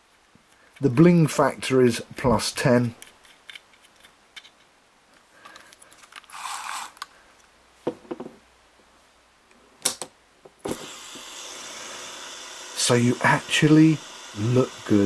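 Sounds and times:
fishing reel scraping: 6.3 - 7.0.

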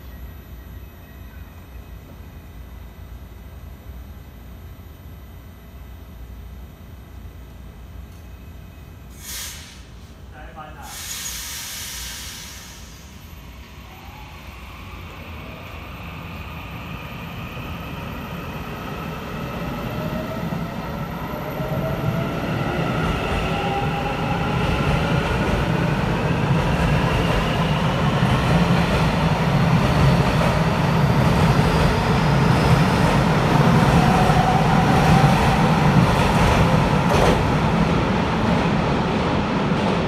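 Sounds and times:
train low rumble: 12.4 - 40.0.

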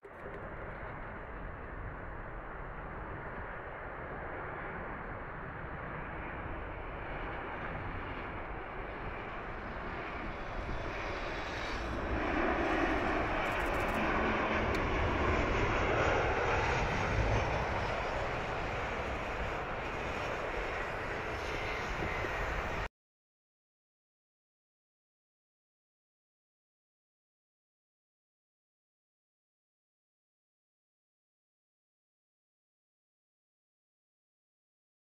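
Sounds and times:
jet engines rushing: 0.0 - 22.9.

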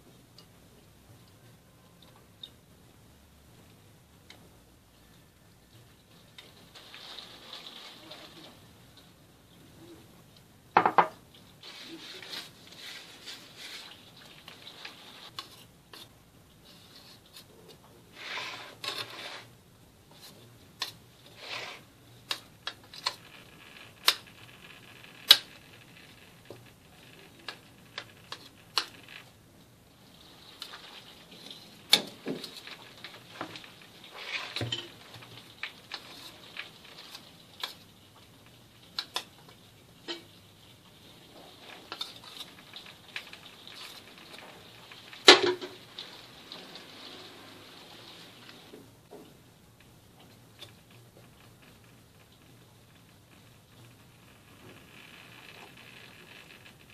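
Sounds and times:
soft rubbing and scraping: 11.6 - 20.5, 21.2 - 21.9.

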